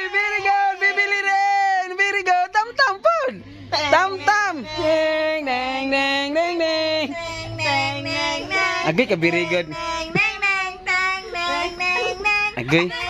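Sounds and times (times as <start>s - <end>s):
children's song high voice singing: 3.7s - 13.0s.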